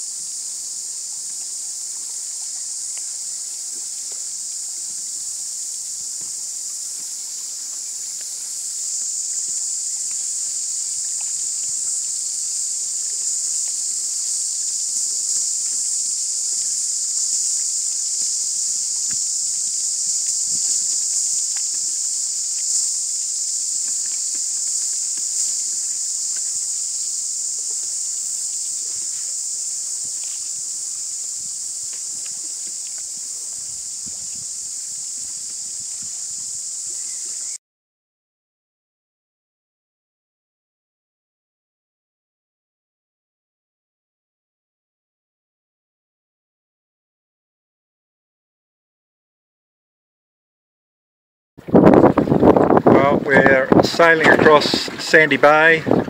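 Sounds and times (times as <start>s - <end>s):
cicadas chorus: 0.0s - 37.6s, 51.6s - 56.0s.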